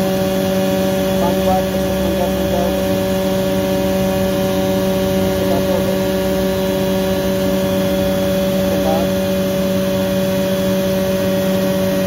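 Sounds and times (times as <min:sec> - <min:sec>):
air compressor humming: 0:00.0 - 0:12.0.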